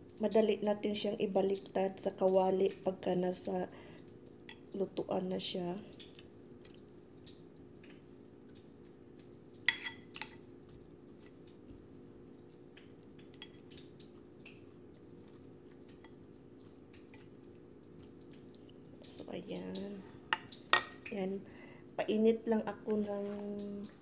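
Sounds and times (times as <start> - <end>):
fork clinking against plate: 9.7 - 10.4.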